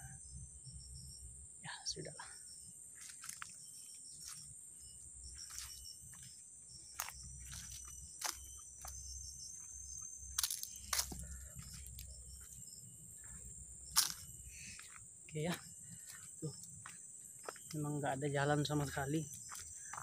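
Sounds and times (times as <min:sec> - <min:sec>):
crickets trilling: 0:00.0 - 0:20.0
twigs snapping underfoot: 0:10.4 - 0:12.1, 0:14.0 - 0:14.2.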